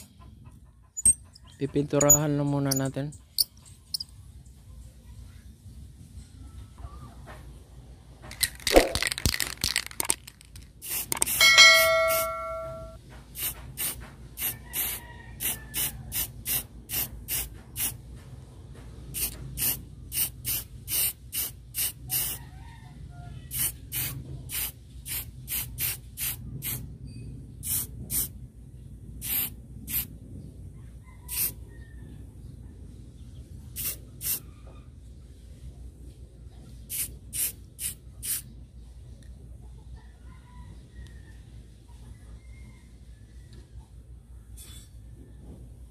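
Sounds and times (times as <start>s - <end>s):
spray can hissing bursts: 8.6s - 11.4s, 13.4s - 18.0s, 19.2s - 22.4s, 23.5s - 26.8s, 27.6s - 28.3s, 29.2s - 30.1s, 31.3s - 31.5s, 33.8s - 34.4s, 36.9s - 38.4s
metal struck and ringing: 11.4s - 13.0s.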